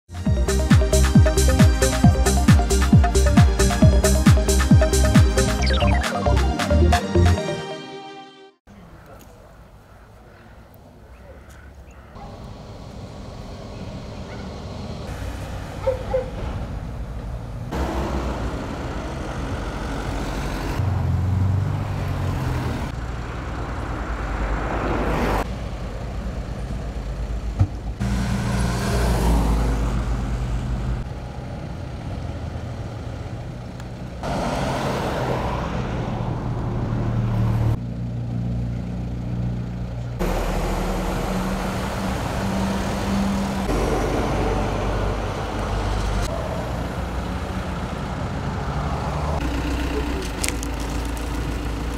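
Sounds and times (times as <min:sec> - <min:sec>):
vehicle engines running: 0:10.9 - 0:51.9
vehicle passing close by: 0:17.7 - 0:25.9, 0:28.0 - 0:31.1, 0:34.2 - 0:39.6, 0:40.2 - 0:51.9.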